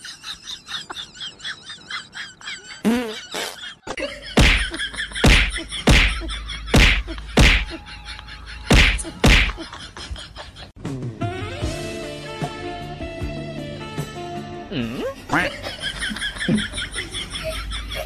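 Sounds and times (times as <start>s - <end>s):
tennis ball whacks: 8.7s - 9.6s.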